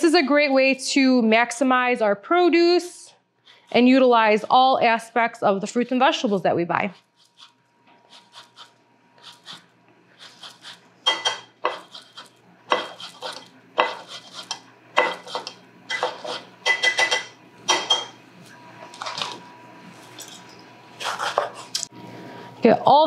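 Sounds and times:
lemon scraping on metal grater: 7.1 - 9.6, 11.7 - 16.5.

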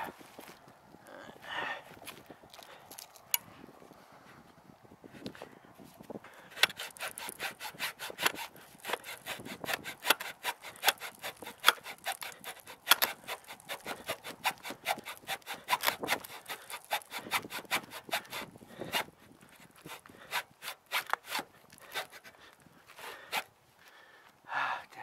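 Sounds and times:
hacksaw cutting wood: 6.4 - 23.5.

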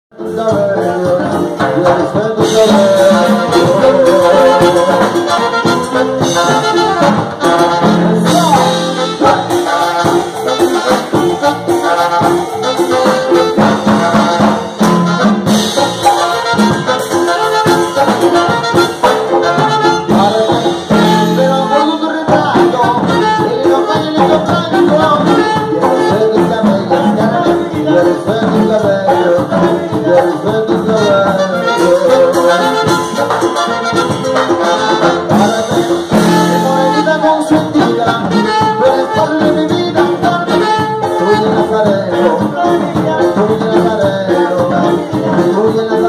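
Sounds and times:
latin dance band: 0.1 - 46.0
tenor saxophone lead: 1.2 - 46.0.

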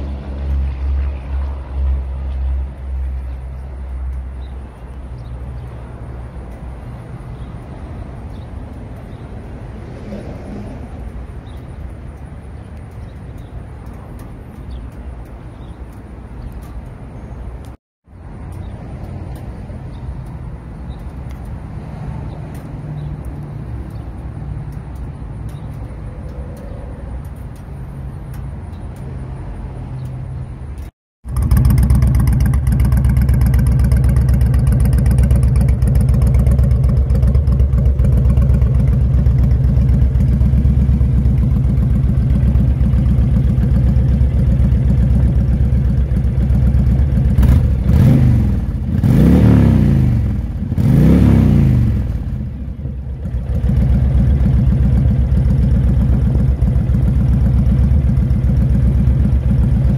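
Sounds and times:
motorcycle engine idling: 31.2 - 49.0, 52.3 - 59.9
motorcycle engine revving: 31.2 - 59.9.

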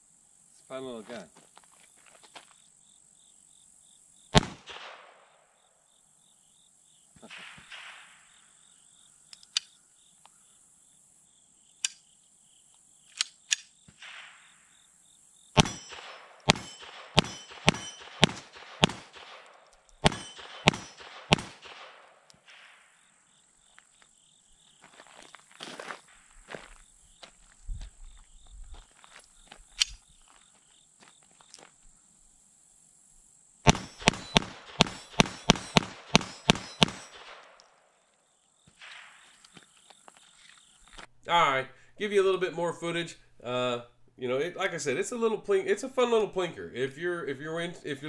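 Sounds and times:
pistol shots: 4.4 - 5.5, 7.3 - 8.5, 15.6 - 22.9, 33.7 - 37.8.

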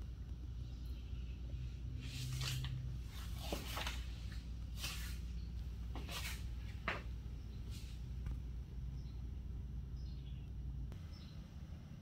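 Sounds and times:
steady low hum: 0.0 - 12.0
soft rustling scuffs: 2.0 - 8.3.

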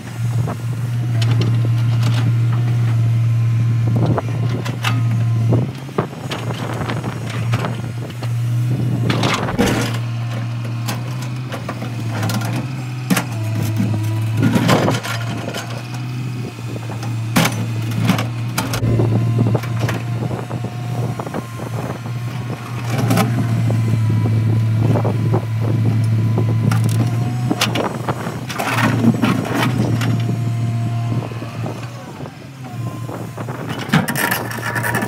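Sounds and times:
excavator diesel engine droning: 0.0 - 35.0
bucket knocking and scraping rock: 9.1 - 10.0.

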